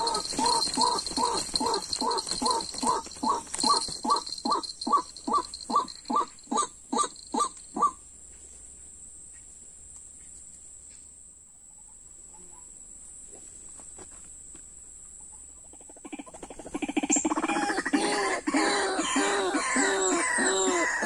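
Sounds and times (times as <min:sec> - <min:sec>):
waterhen calls: 0:00.0 - 0:08.0.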